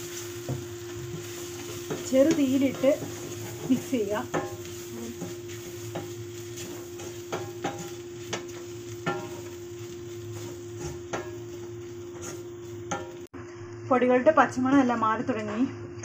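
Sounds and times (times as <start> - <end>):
steady hiss: 0.0 - 12.0
wooden spatula scraping pot: 0.9 - 13.1
spatula knocking on metal pot: 1.9 - 4.6, 5.2 - 9.4.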